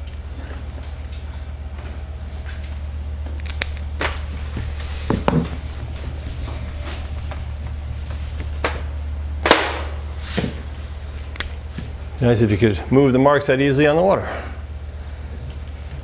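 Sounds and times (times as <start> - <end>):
steady low hum: 0.0 - 16.0
eraser wiping a whiteboard: 4.1 - 9.0.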